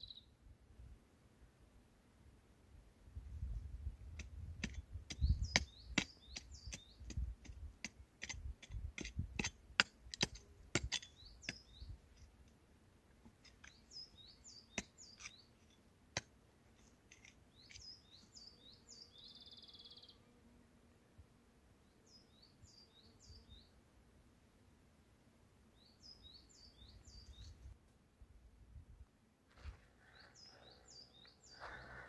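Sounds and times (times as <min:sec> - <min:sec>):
birds chirping: 0:29.6 - 0:32.0.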